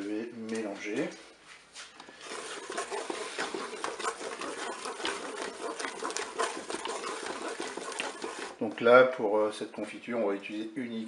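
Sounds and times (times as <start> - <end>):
spatula stirring fruit in a bowl: 1.8 - 9.0.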